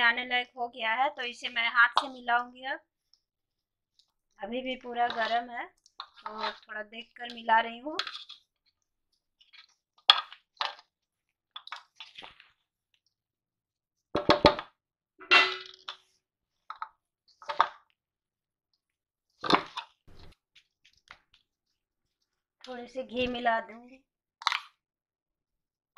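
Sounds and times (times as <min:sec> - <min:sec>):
clinks and scrapes on steel plate: 0:15.2 - 0:16.0.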